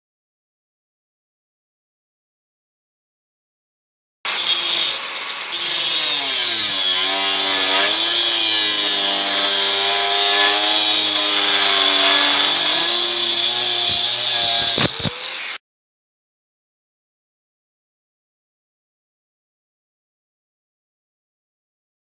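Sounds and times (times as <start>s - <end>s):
angle grinder cutting steel: 4.3s - 15.6s.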